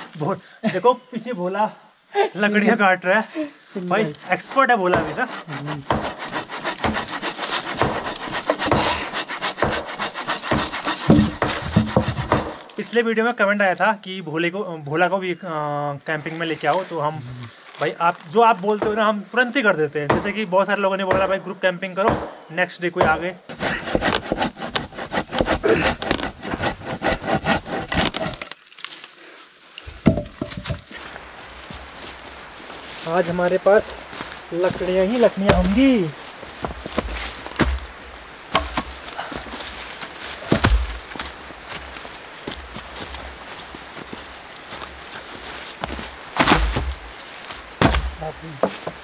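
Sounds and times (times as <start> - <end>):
hand saw cutting log: 3.9 - 12.8, 23.5 - 28.5, 34.7 - 36.1
wood knocks: 4.8 - 12.6, 29.9 - 30.9, 38.5 - 38.9, 47.8 - 49.0.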